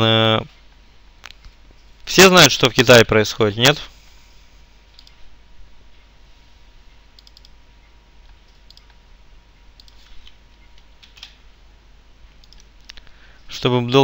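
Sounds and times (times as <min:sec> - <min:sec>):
faint steady hiss: 0:00.0 - 0:14.0
keyboard and mouse clicking: 0:05.0 - 0:05.2, 0:07.2 - 0:07.6, 0:08.5 - 0:09.0, 0:09.8 - 0:10.1, 0:12.4 - 0:13.0.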